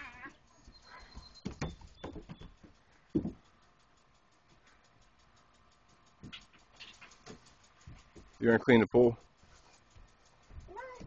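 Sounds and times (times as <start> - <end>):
footsteps on wooden deck: 0.6 - 3.4.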